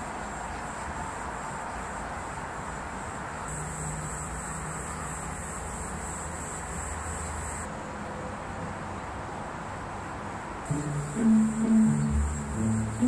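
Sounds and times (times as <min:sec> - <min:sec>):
high even trill: 0:10.7 - 0:13.0
low hum: 0:10.7 - 0:13.0.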